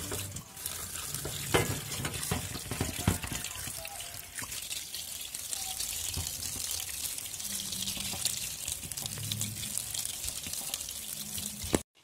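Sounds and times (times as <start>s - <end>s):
tap water running and splashing: 0.0s - 12.0s
knocks of colander: 1.2s - 3.8s.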